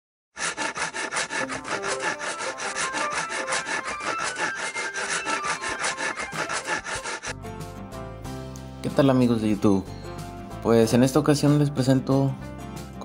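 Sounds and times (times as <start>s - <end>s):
rapid scraping on wood: 0.4s - 7.3s.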